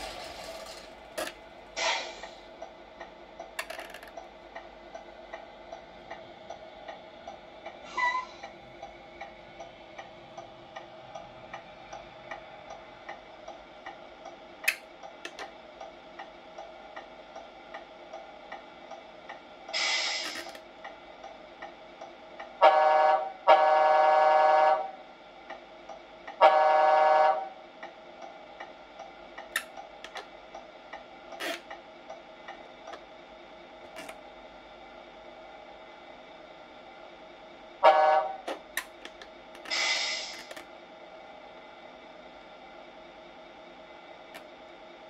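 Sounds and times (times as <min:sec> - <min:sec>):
truck horn blasts: 0:22.6 - 0:24.9, 0:26.4 - 0:27.5, 0:37.8 - 0:38.5.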